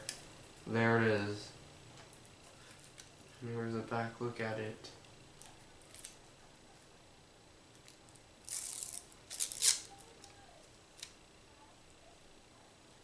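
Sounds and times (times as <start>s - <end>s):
plastic film peeling: 5.4s - 6.2s, 7.8s - 10.4s.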